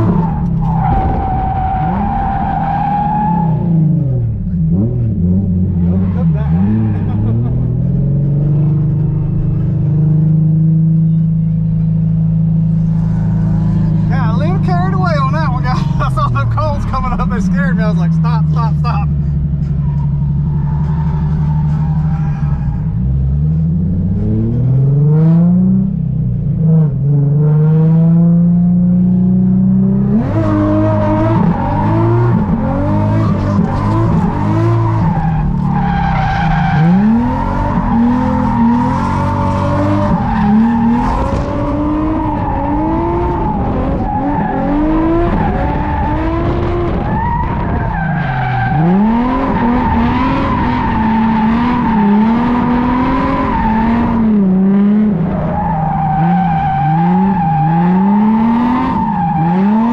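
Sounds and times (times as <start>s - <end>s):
tires squealing: 0.0s - 10.4s, 12.6s - 25.3s, 30.0s - 59.9s
engine revving: 12.7s - 26.0s, 26.6s - 59.9s.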